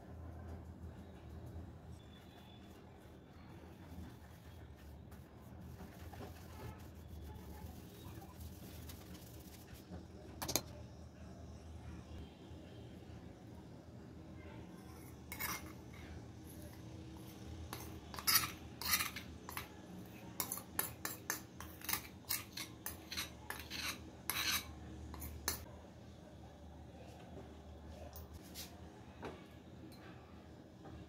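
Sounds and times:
metal spoon scraping ceramic bowl: 0:15.0 - 0:19.8, 0:20.4 - 0:25.7.

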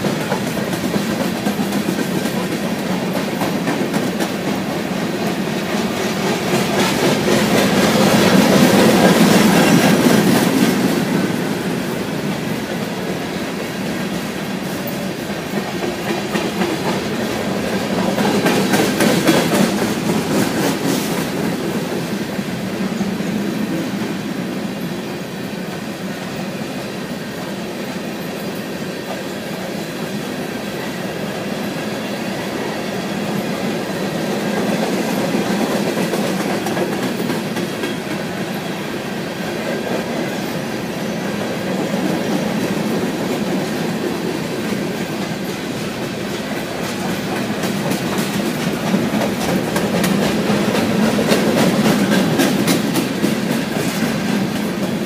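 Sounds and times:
wheels clacking over rail joints: 0:00.0 - 0:23.3, 0:31.7 - 0:55.0
freight train rolling past: 0:00.0 - 0:55.0.

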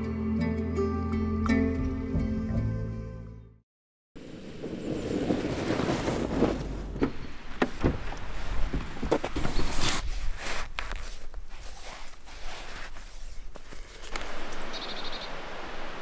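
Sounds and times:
tyres crunching through snow: 0:04.2 - 0:16.0.

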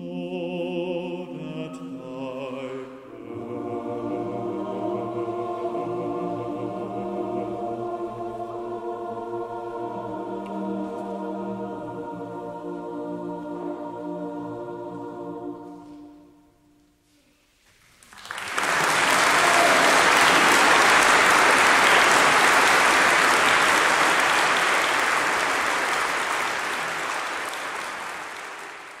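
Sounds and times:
choir holding chord: 0:00.0 - 0:16.8, 0:18.8 - 0:29.0
audience applause: 0:18.0 - 0:29.0.

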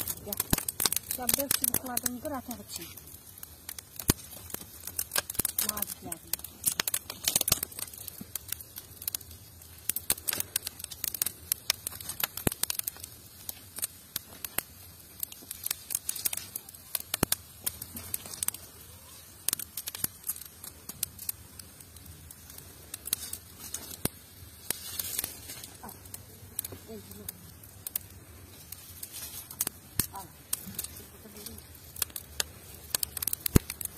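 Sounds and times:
sticks rustling and snapping: 0:00.0 - 0:03.1, 0:03.7 - 0:08.8, 0:22.9 - 0:26.8, 0:27.8 - 0:33.9
twigs crackling in fire: 0:00.0 - 0:33.9.

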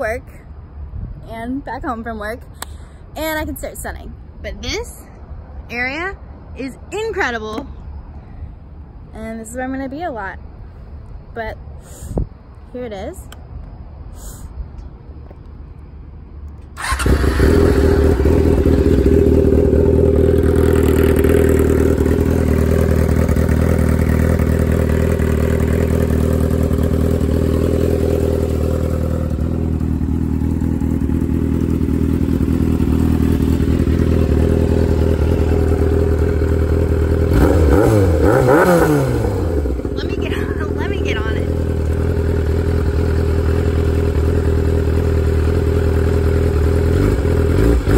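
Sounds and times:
motorcycle engine revving: 0:16.7 - 0:47.9.

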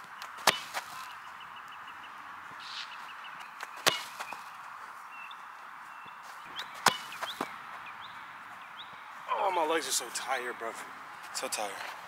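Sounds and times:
small birds chirping: 0:00.0 - 0:10.6
sharp thump: 0:03.8 - 0:04.2.

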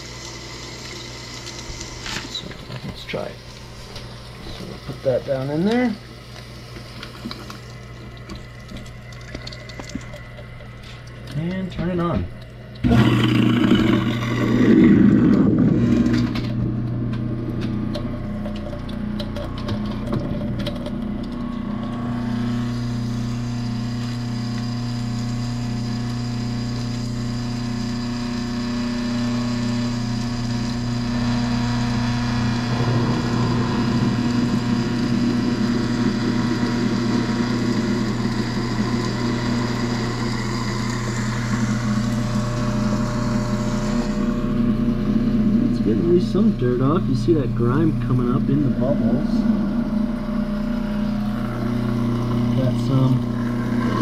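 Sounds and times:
garbage disposal motor humming: 0:00.0 - 0:54.0
trickle of water: 0:06.0 - 0:12.9, 0:18.3 - 0:27.6.

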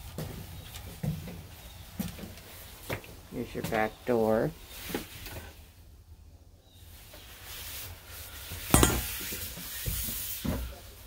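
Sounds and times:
handling noise: 0:08.8 - 0:09.4.

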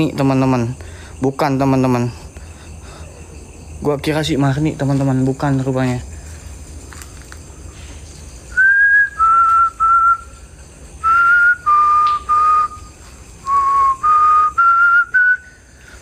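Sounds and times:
person whistling a tune: 0:08.5 - 0:10.3, 0:11.0 - 0:15.5.

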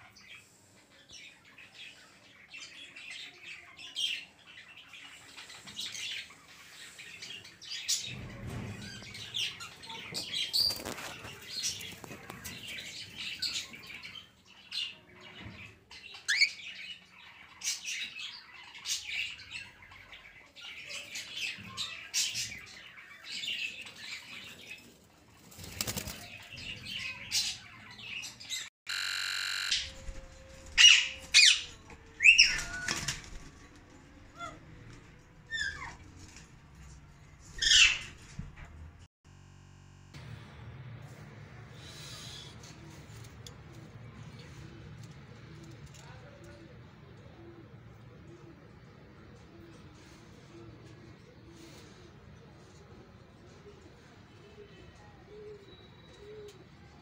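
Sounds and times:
birds chirping and calling: 0:00.0 - 0:28.7, 0:29.8 - 0:36.5, 0:37.5 - 0:38.5
wing flapping: 0:25.4 - 0:26.3
steady buzz: 0:28.9 - 0:30.7, 0:39.3 - 0:42.6.

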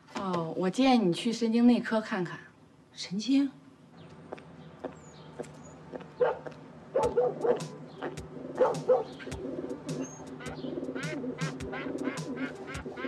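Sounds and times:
dog barking: 0:06.2 - 0:09.2
pigeons cooing: 0:06.2 - 0:13.0
ducks quacking: 0:07.0 - 0:13.0.

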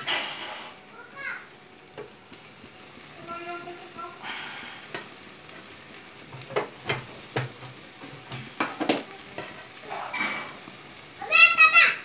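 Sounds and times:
chicken sizzling on a grill: 0:00.0 - 0:12.0.

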